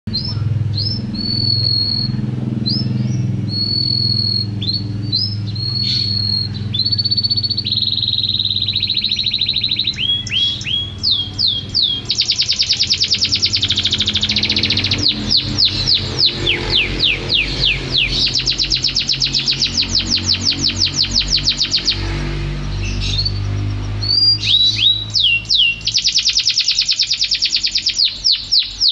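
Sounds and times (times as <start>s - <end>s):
canary singing trills: 0.1s - 28.9s.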